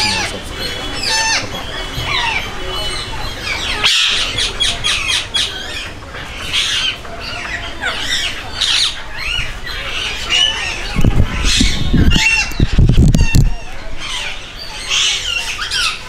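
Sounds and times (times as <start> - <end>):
birds chirping and squawking: 0.0 - 16.0
low rumbling noise: 5.2 - 14.8.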